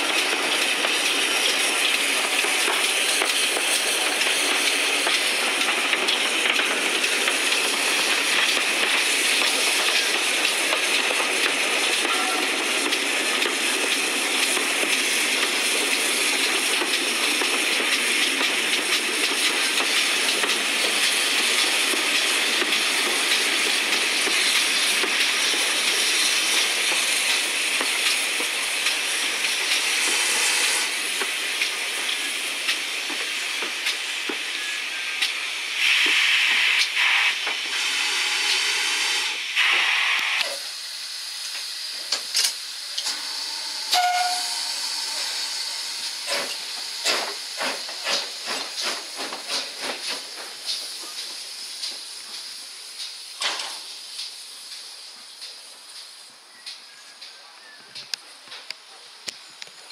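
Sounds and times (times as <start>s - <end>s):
steam locomotive hissing: 0.0s - 59.9s
shrill steam whistle: 12.0s - 12.8s, 43.1s - 46.6s.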